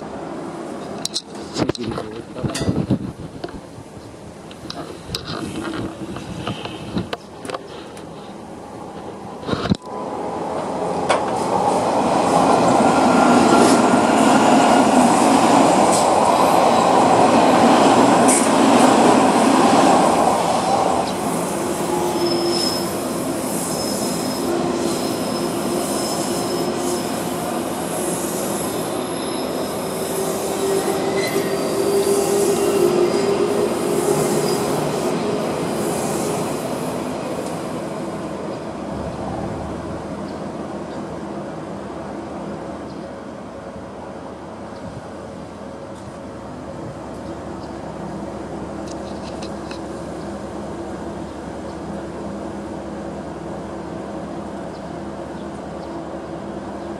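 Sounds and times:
train wheels rumbling on rails: 0.0 - 43.2
train whining tones: 8.8 - 40.2.

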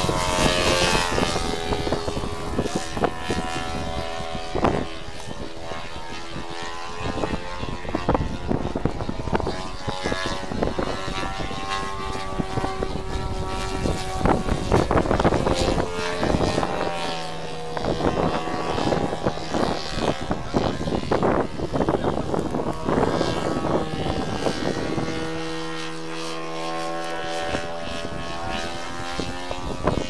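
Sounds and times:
model airplane engine: 0.0 - 30.0.

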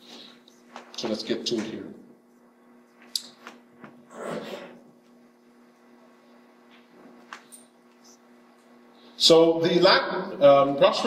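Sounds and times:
electrical mains hum: 0.0 - 11.0.

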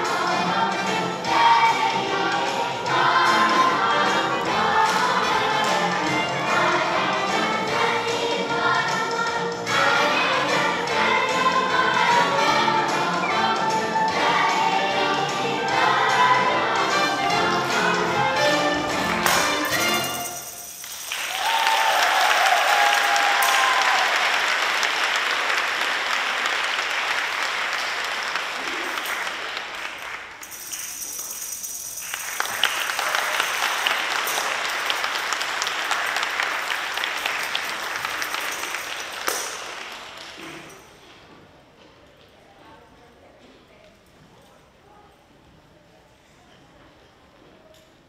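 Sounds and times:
children's choir singing: 0.0 - 20.5
audience applause: 20.9 - 30.4, 32.0 - 40.4.

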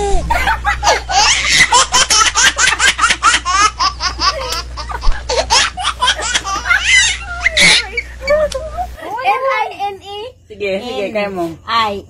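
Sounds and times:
people laughing: 0.0 - 9.0.

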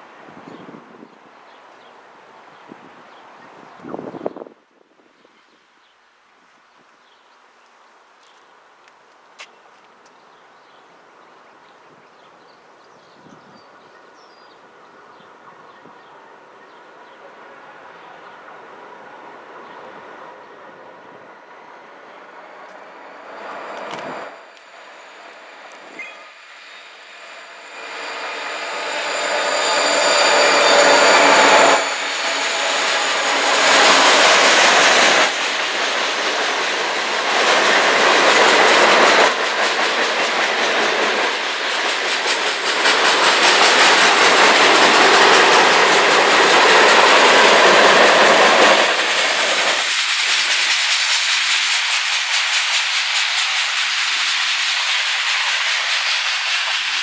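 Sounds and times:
diesel locomotive engine: 14.7 - 57.0
train wheels rolling: 21.4 - 57.0.

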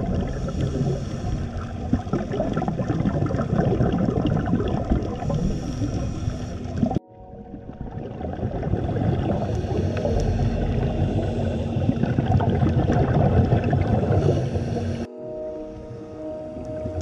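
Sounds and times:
dense underwater crackle: 0.0 - 15.1
scuba exhaust bubbles gurgling: 0.0 - 15.1.

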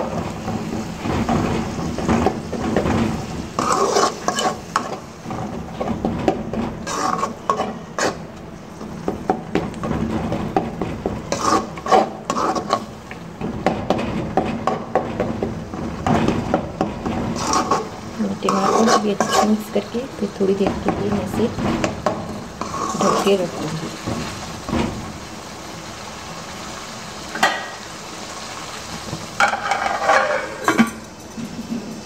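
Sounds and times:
light sizzle: 0.0 - 32.0
spoon scraping and knocking pan: 0.4 - 25.0, 29.4 - 31.0.

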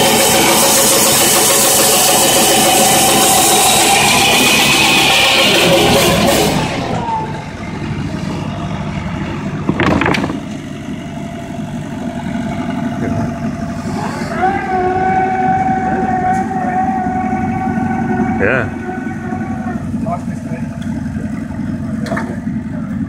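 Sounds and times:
sawmill machinery running: 0.0 - 23.0
sawmill whine: 0.0 - 23.0
short clatter: 9.6 - 10.8.

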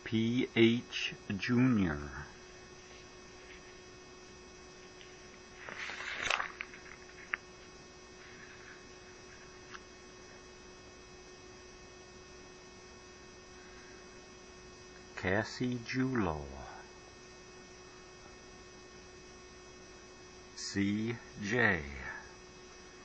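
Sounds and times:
electrical hum with hiss: 0.0 - 23.0
short rustling: 5.5 - 7.4.

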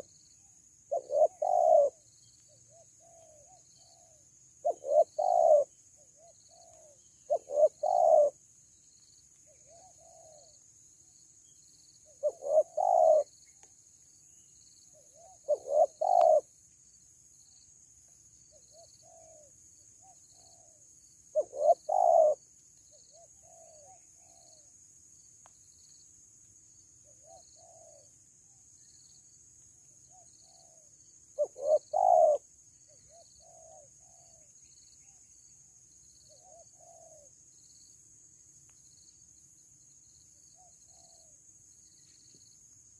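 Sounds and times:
faint dove coos: 0.0 - 8.4, 9.4 - 11.2, 12.0 - 13.7, 14.9 - 16.5, 18.4 - 24.8, 27.0 - 29.2, 29.8 - 37.4, 40.4 - 41.4
dove cooing: 0.9 - 2.0, 2.7 - 8.4, 9.5 - 10.5, 12.1 - 13.3, 15.0 - 16.5, 18.7 - 22.4, 23.1 - 24.7, 27.1 - 28.1, 30.1 - 32.4, 33.1 - 35.2, 36.3 - 37.3.

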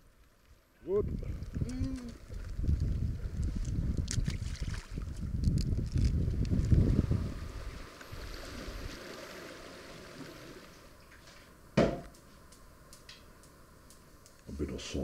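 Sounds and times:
wind on microphone: 0.9 - 9.0
sea rumble: 1.0 - 11.0
pan set down on counter: 11.8 - 12.1.

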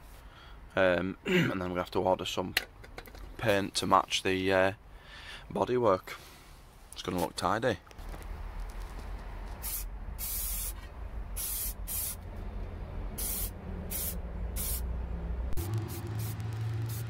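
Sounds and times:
aerosol spray can hissing: 9.6 - 10.8, 11.4 - 12.2, 13.2 - 14.8, 15.6 - 17.0.

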